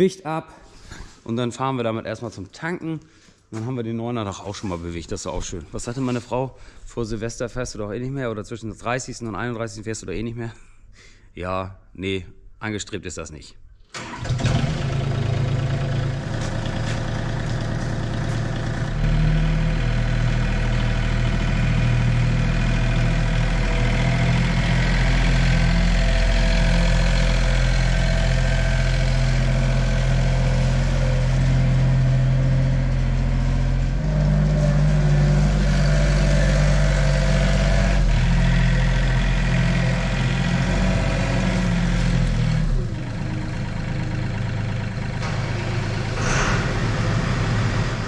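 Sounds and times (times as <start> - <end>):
tractor diesel engine idling: 14.0 - 48.0.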